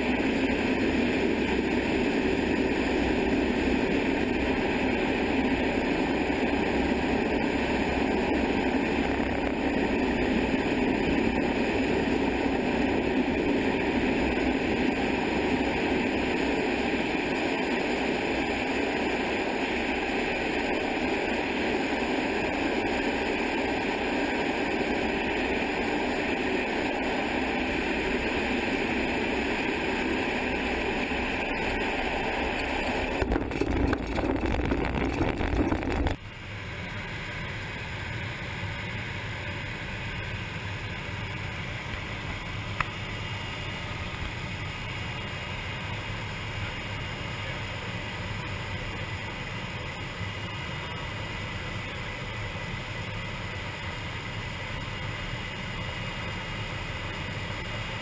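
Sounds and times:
rushing wind: 0:00.0 - 0:36.2
propeller aircraft engine droning: 0:00.0 - 0:58.0.

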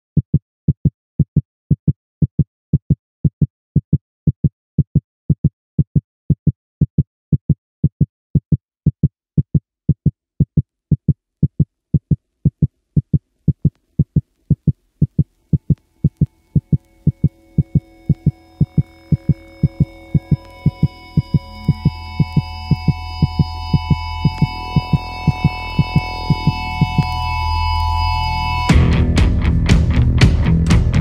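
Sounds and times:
electronic kick drum: 0:10.0 - 0:28.0, 0:28.6 - 0:31.0.

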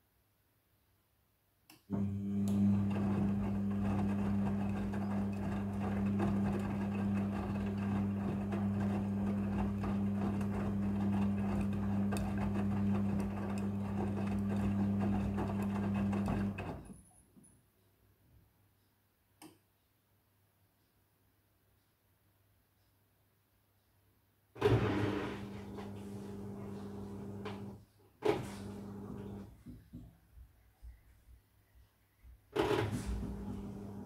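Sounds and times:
washing machine motor humming: 0:01.9 - 0:16.9, 0:24.6 - 0:29.7, 0:32.5 - 0:34.0.

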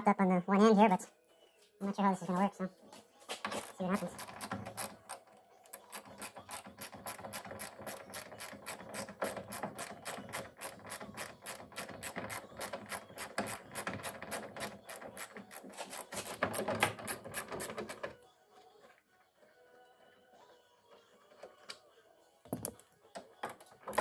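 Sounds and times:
socket ratchet clicking: 0:05.8 - 0:18.0.

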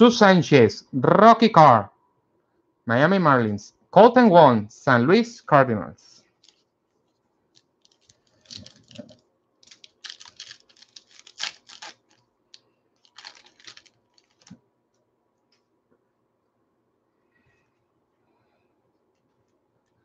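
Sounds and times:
foil wrapper tearing and crinkling: 0:07.9 - 0:12.2, 0:13.0 - 0:14.6.

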